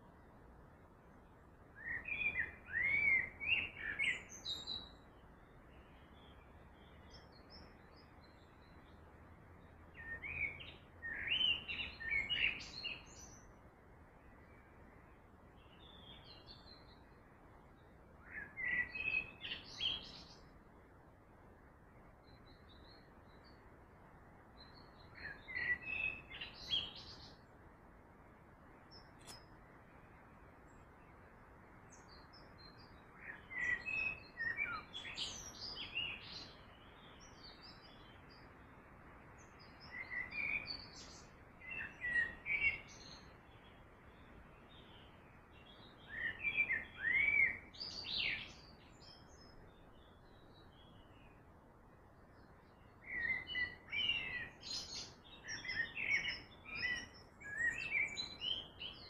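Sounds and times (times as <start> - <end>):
small birds chirping and whistling: 1.8 - 5.0, 10.0 - 13.5, 18.3 - 20.5, 24.6 - 27.4, 31.9 - 38.5, 39.4 - 51.4, 52.3 - 59.0.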